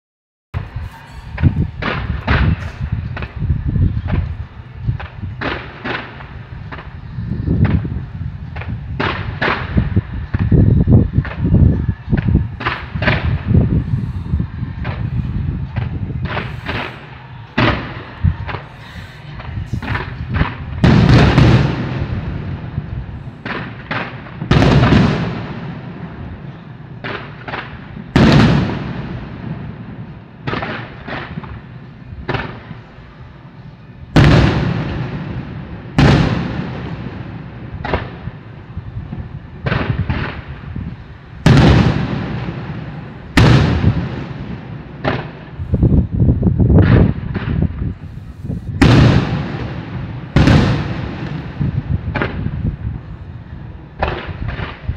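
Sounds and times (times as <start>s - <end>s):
fireworks shells bursting: 12.2s - 22.4s.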